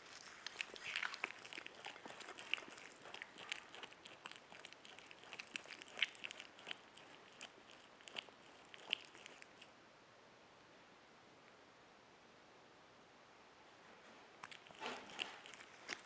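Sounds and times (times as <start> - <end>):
animal chewing and crunching: 0.0 - 9.7, 14.4 - 16.0.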